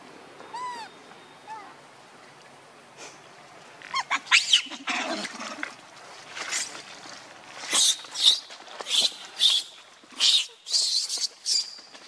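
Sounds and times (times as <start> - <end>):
monkeys squealing and screeching: 3.9 - 5.0.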